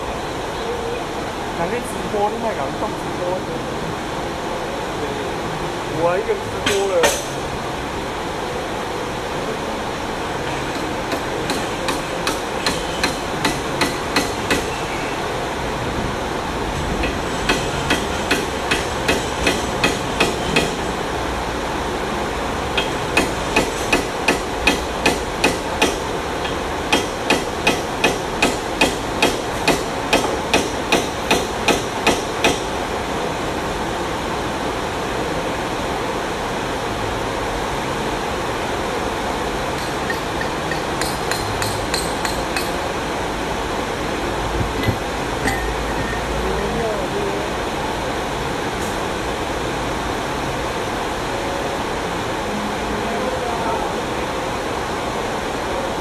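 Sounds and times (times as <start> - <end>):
steady background hiss: 0.0 - 56.0
hammer strikes: 6.6 - 7.4, 10.7 - 14.8, 17.0 - 20.9, 22.8 - 32.7, 39.8 - 42.9, 44.6 - 46.2.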